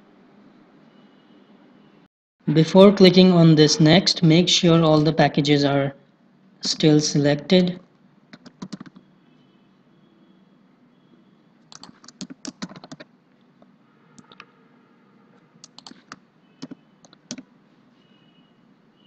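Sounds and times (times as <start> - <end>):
computer keyboard typing: 8.3 - 9.0, 11.7 - 13.1, 14.2 - 14.5, 15.6 - 17.5.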